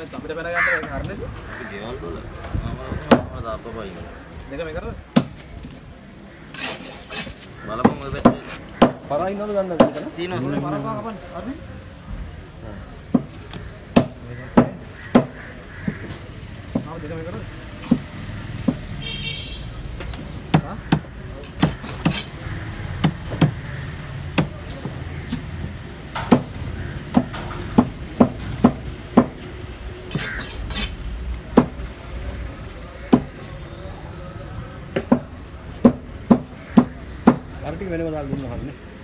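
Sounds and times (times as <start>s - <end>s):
cleaver chopping fish on wood: 7.8s - 9.1s, 13.1s - 16.1s, 20.0s - 23.7s, 24.3s - 25.5s, 26.1s - 29.4s, 31.5s - 31.8s, 33.1s - 33.3s, 35.0s - 37.5s.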